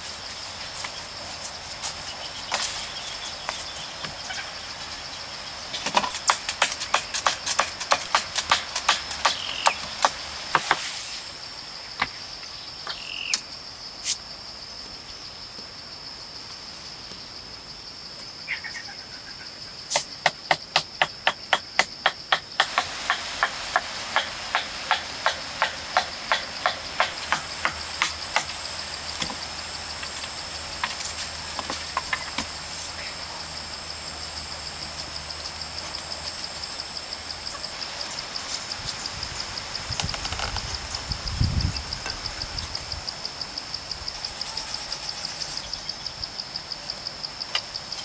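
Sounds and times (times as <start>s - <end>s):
forest insects droning: 0.0s - 48.0s
hand tool striking soil: 5.8s - 10.9s, 19.9s - 28.6s.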